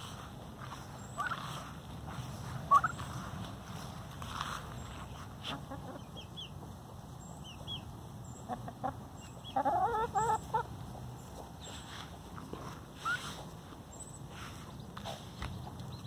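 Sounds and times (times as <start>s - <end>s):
hens clucking: 0.0s - 16.0s
short wavering calls: 2.7s - 3.2s, 13.0s - 13.4s.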